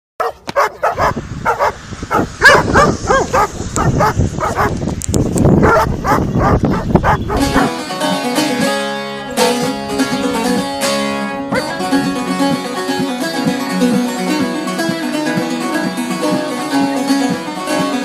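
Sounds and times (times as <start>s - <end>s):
dogs barking and yelping: 0.2s - 4.8s, 5.6s - 7.8s
plucked-string music: 6.4s - 18.0s.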